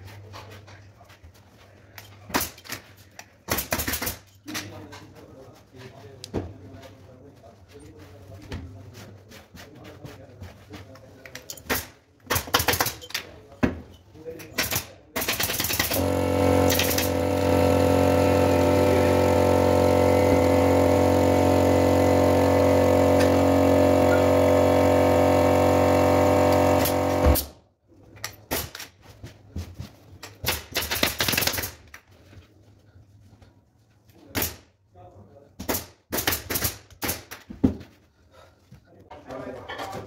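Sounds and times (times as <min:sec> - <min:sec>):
air compressor humming: 0:15.8 - 0:27.5.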